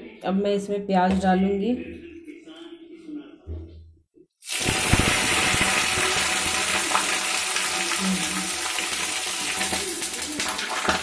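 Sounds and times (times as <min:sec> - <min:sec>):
onions sizzling in hot oil: 0:04.4 - 0:11.0.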